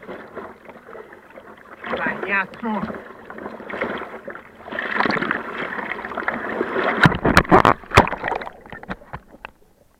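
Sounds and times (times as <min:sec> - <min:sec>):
water sloshing around surfboard: 0:00.0 - 0:09.9
loud sharp splashes: 0:03.3 - 0:08.8.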